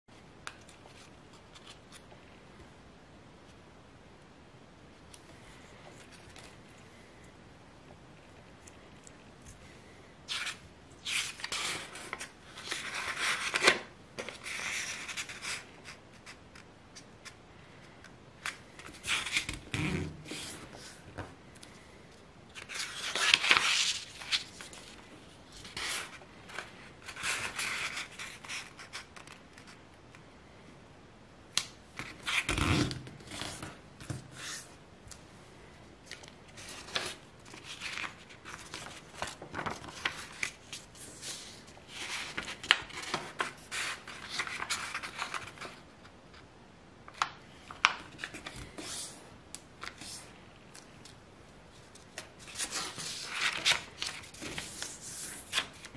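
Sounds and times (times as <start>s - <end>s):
paper rustling and crackling: 36.0s - 45.8s, 51.1s - 55.9s.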